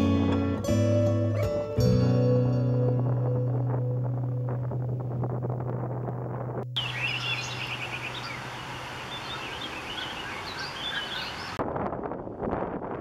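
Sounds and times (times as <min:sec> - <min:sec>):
low music drone: 0:00.0 - 0:07.2
wind noise on microphone: 0:00.0 - 0:07.9, 0:11.4 - 0:13.0
birds chirping and singing: 0:06.8 - 0:11.6.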